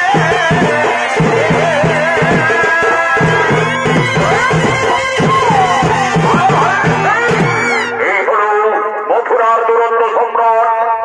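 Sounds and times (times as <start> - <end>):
shehnai wavering melody: 0.0 - 8.8
dhol and dhamsa drums beat: 0.0 - 9.0.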